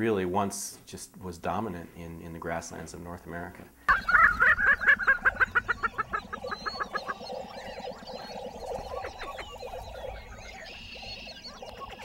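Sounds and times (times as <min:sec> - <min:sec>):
low booming bird calls: 0:03.9 - 0:12.0
rapid sharp bird notes: 0:03.9 - 0:12.0.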